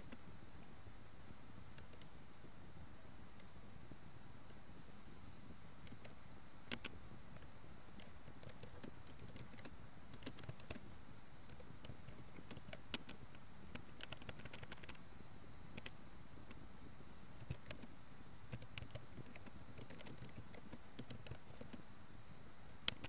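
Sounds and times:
low hiss: 0:00.0 - 0:23.0
keyboard typing: 0:06.7 - 0:07.0, 0:08.0 - 0:10.8, 0:11.5 - 0:15.0, 0:17.4 - 0:17.9, 0:18.5 - 0:21.8.

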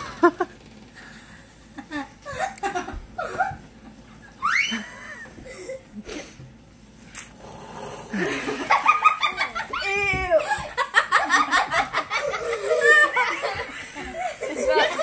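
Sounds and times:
people laughing: 0:08.1 - 0:15.0
loud rising-and-falling laugh: 0:10.6 - 0:15.0.

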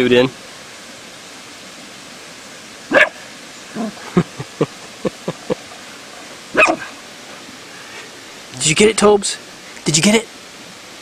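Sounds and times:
dog barking: 0:02.9 - 0:03.2, 0:06.5 - 0:06.9.

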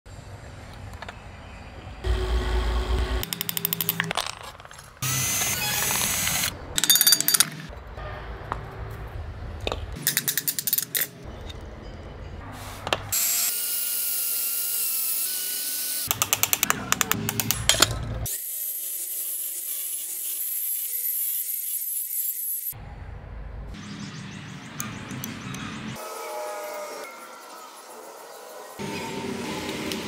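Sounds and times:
angle grinder cutting: 0:05.0 - 0:06.6, 0:13.1 - 0:16.2, 0:18.3 - 0:22.8
drill whirring through metal: 0:05.0 - 0:06.6, 0:13.2 - 0:16.1.

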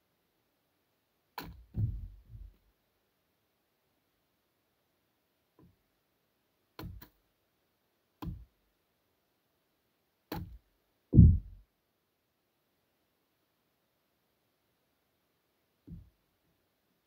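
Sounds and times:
heavy low thud: 0:01.7 - 0:02.6, 0:11.2 - 0:11.6.

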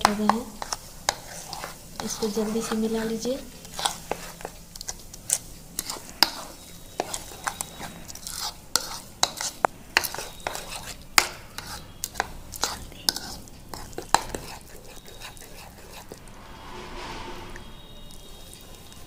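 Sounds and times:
spoon scraping plastic bowl: 0:03.7 - 0:04.5, 0:05.8 - 0:16.2.

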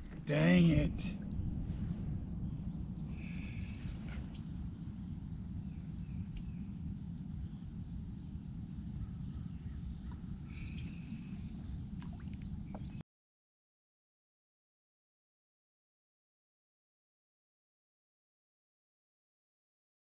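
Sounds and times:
wind rumble on microphone: 0:00.0 - 0:13.0
high-pitched insect drone: 0:00.3 - 0:13.0.

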